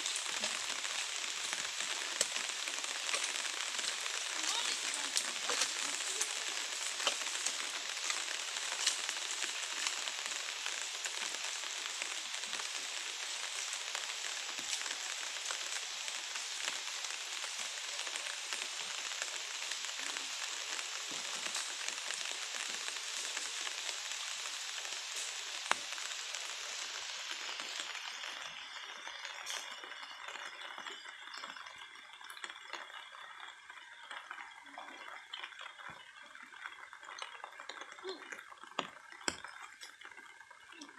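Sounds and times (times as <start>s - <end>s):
rain pattering: 0.0s - 40.9s.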